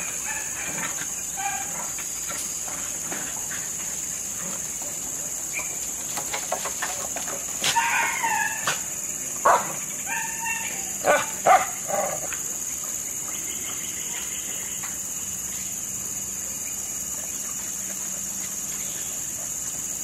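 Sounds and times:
dogs barking and yelping: 0.0 - 2.5, 7.1 - 12.6.

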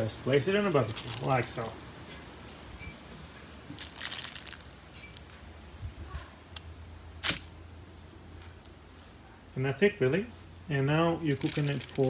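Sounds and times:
aluminium foil crinkling: 0.6 - 1.8, 3.7 - 5.5, 11.3 - 12.0.

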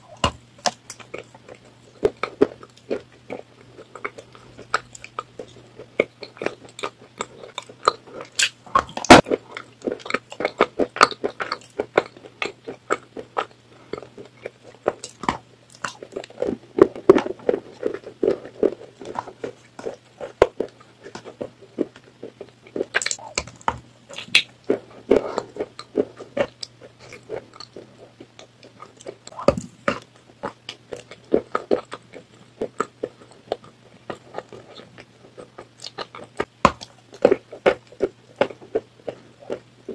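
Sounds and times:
faint low hum: 0.0 - 39.9
person chewing and crunching: 0.0 - 39.9
wet mouth sounds: 13.8 - 37.8.

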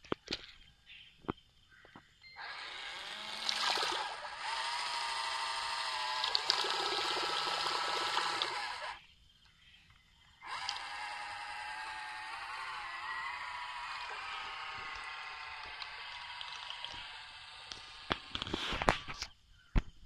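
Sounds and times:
electric motor whining: 2.3 - 9.0, 10.4 - 19.3
propeller churning water: 2.4 - 9.0, 14.0 - 18.4.

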